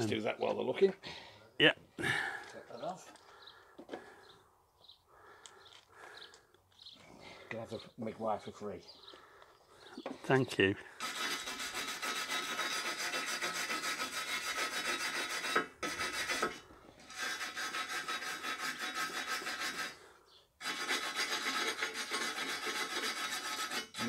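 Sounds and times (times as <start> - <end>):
wire brush scrubbing metal: 11.0 - 24.0.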